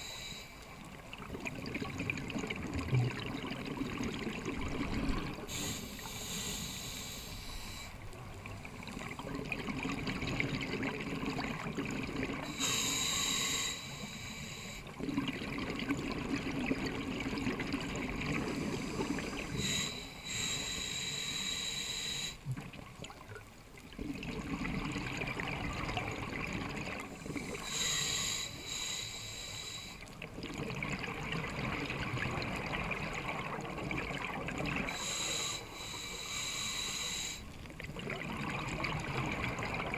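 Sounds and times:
regulator hissing inhale: 0.0s - 0.8s, 5.4s - 8.1s, 12.4s - 15.0s, 18.5s - 22.5s, 27.2s - 30.2s, 34.8s - 37.6s
exhaust bubbles underwater: 0.8s - 5.8s, 8.2s - 12.6s, 14.9s - 19.9s, 22.5s - 27.9s, 30.1s - 35.2s, 37.6s - 39.9s.

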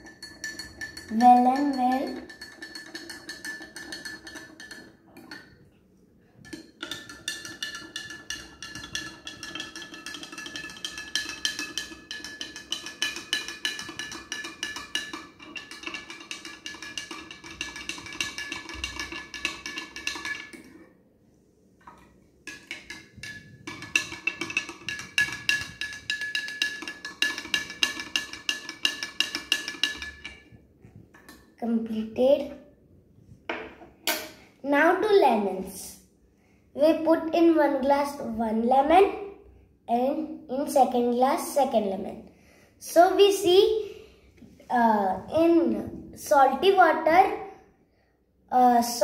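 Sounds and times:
metal spoon clinking against glass: 0.0s - 5.6s, 6.4s - 20.7s, 22.5s - 30.5s.

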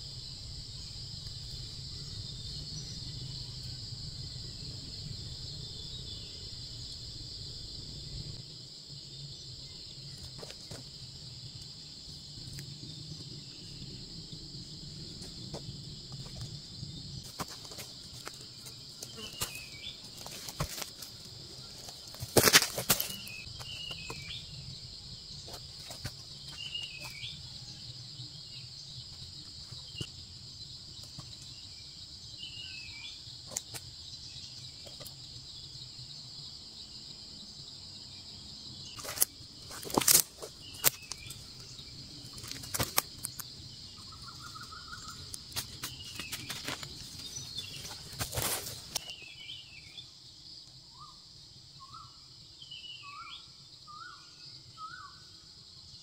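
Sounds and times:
insects droning: 0.0s - 56.0s
rustling of dry leaves and brush: 17.2s - 24.4s, 39.0s - 49.3s
bird chirping: 23.0s - 30.1s, 40.5s - 48.2s.

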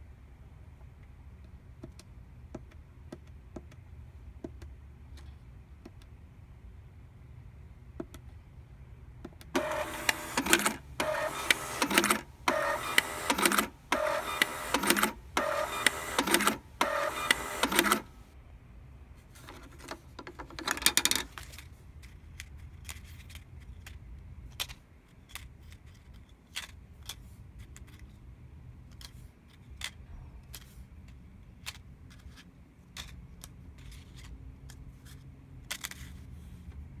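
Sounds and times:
paper tickets rustling: 9.6s - 18.1s.

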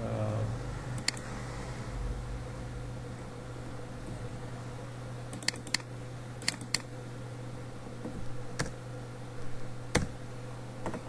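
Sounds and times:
steady low hum: 0.0s - 11.0s
computer mouse clicking: 1.0s - 1.3s, 5.3s - 6.9s, 8.6s - 8.8s.

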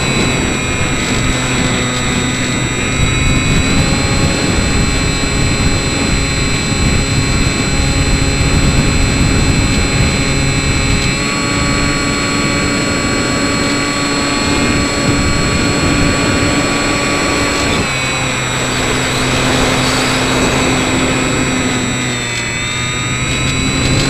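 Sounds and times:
electric motor and propeller: 0.0s - 24.0s.

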